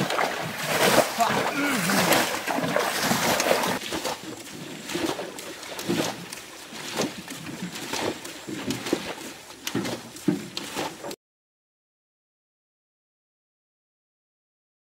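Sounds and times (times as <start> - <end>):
muddy water splashing: 0.0 - 11.2.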